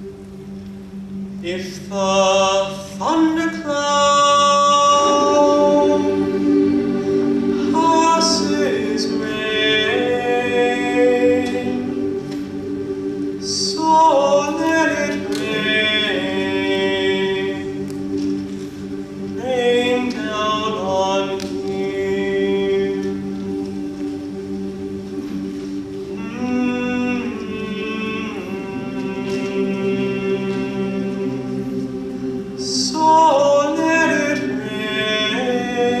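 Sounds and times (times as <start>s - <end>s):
large choir singing: 1.4s - 36.0s.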